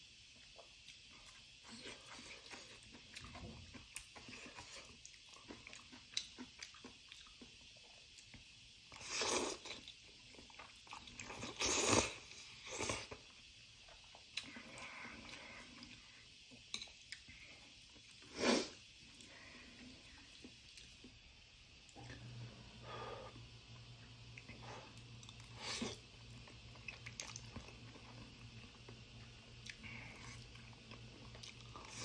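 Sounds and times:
person chewing: 0:00.4 - 0:08.4, 0:09.0 - 0:13.3, 0:24.4 - 0:32.0.

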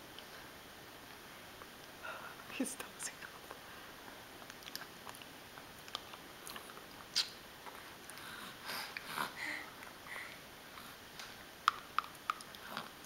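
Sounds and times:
baby lip smacks: 0:04.4 - 0:07.4
baby sucking clicks: 0:04.4 - 0:07.4.

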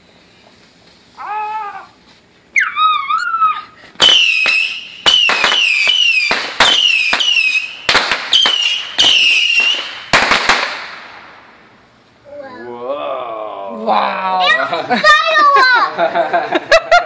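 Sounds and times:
falling high whistle: 0:02.5 - 0:09.9
firework cracks: 0:04.0 - 0:11.8.

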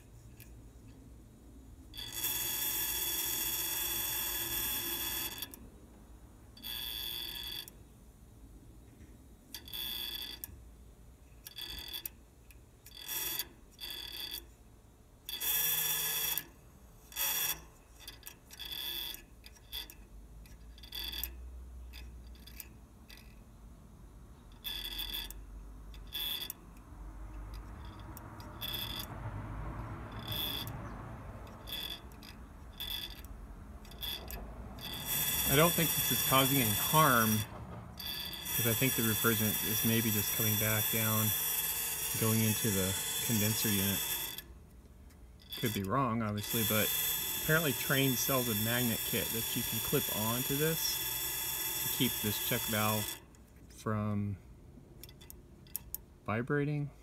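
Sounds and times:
valve chattering buzz: 0:01.9 - 0:05.6, 0:15.2 - 0:20.0, 0:30.1 - 0:44.5, 0:45.4 - 0:53.3.

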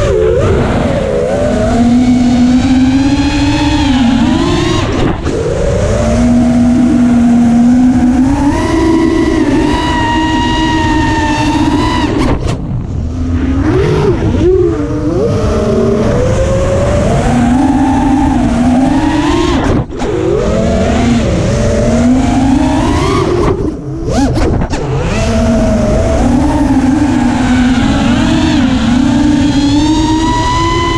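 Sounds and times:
drone motors whining: 0:00.0 - 0:30.9
low rumble: 0:10.8 - 0:18.7.

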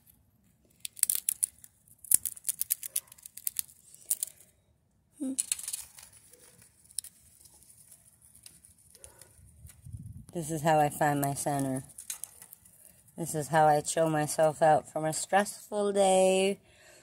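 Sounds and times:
squirrel cracking peanut shell: 0:00.7 - 0:04.5, 0:05.3 - 0:10.4, 0:11.2 - 0:13.1.

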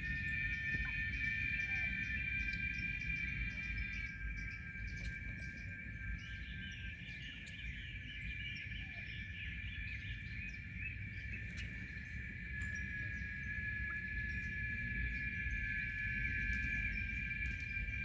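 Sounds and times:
insects droning: 0:00.0 - 0:18.0
wind rumble on microphone: 0:00.0 - 0:18.0
bird chirping calls: 0:00.2 - 0:14.5.

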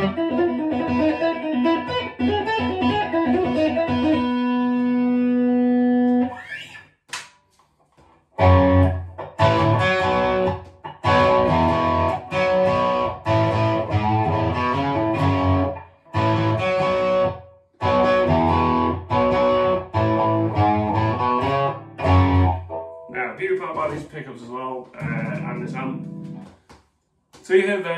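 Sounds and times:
distorted electric guitar: 0:00.0 - 0:06.8, 0:08.4 - 0:24.2, 0:24.8 - 0:26.6.

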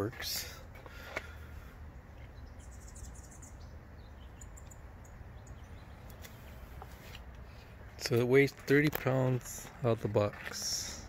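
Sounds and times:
bird chirps: 0:02.0 - 0:06.6.

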